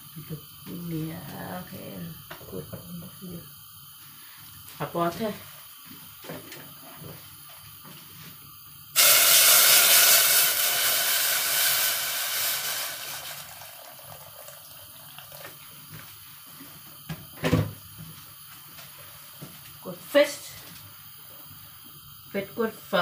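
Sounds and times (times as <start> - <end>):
water pouring into a saucepan: 9.0 - 16.4.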